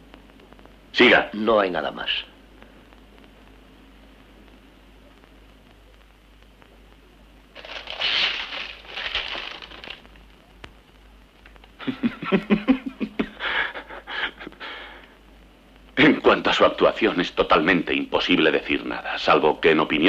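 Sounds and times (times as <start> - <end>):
paper rustling: 7.6 - 10.0.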